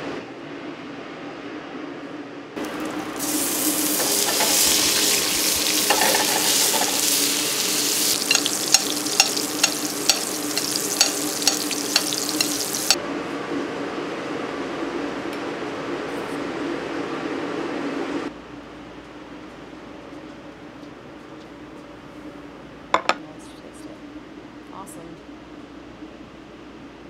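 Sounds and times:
fish sizzling in butter: 2.6s - 13.0s
metal spoon scraping pan: 4.0s - 7.2s, 8.1s - 13.0s
spoon tapping pan rim: 8.2s - 13.0s.

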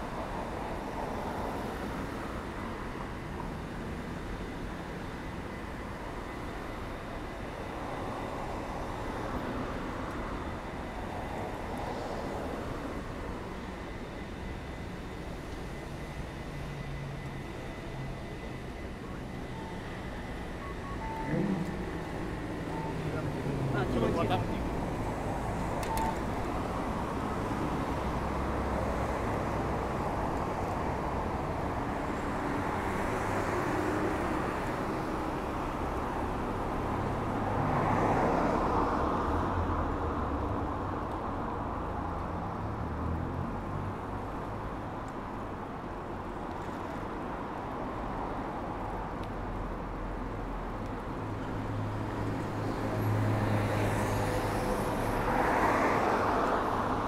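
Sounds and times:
road traffic hum: 0.0s - 57.0s.

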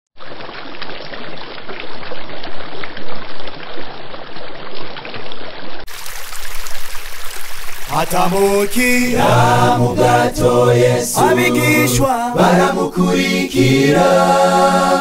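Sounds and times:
rushing splashing water: 0.2s - 9.7s.

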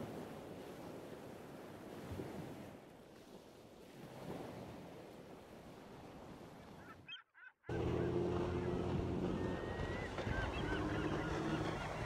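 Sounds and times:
wind: 0.0s - 12.0s
birds chirping: 6.8s - 12.0s
motorboat engine hum: 7.6s - 12.0s
water noise: 7.7s - 12.0s.

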